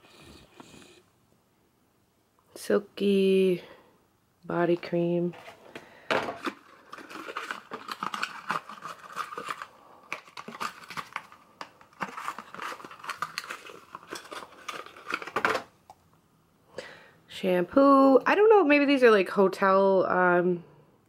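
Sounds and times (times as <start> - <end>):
rustling: 5.3 - 15.7.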